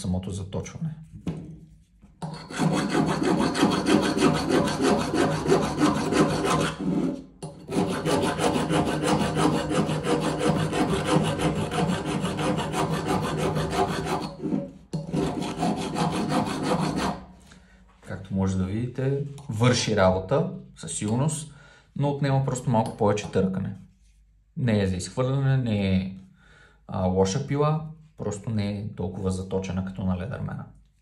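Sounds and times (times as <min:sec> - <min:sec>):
file rasping on metal: 0:02.2 - 0:17.3.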